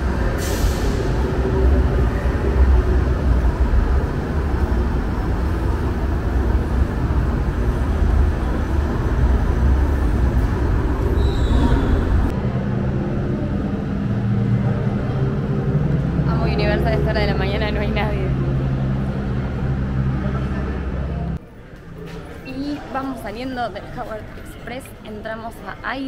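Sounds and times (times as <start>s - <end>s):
low hum: 0.0s - 21.4s
train rumbling on track: 0.0s - 21.4s.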